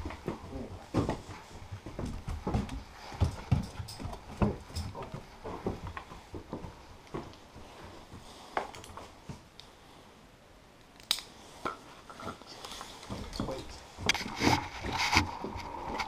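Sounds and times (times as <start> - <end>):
harness thumps and rubbing: 13.1 - 16.0.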